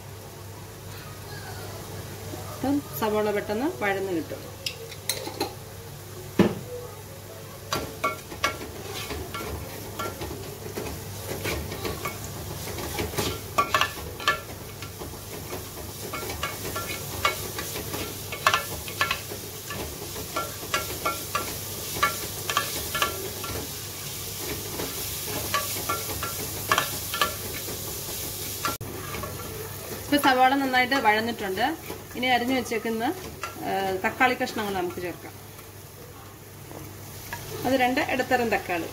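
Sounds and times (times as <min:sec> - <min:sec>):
onions sizzling in oil: 0:00.0 - 0:38.9
spoon scraping and clicking on pan: 0:12.8 - 0:23.7, 0:24.8 - 0:27.5.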